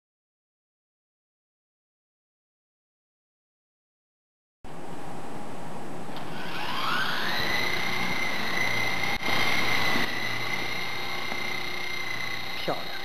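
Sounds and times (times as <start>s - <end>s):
rc helicopter motor whine: 6.1s - 13.0s.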